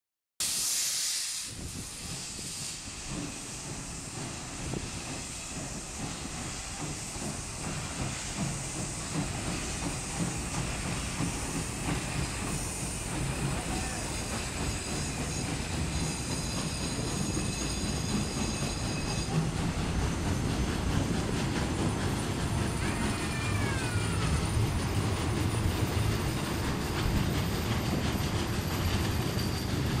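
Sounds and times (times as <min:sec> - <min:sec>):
train wheels rumbling on rails: 0:00.4 - 0:30.0
high wheel squeal: 0:01.9 - 0:30.0.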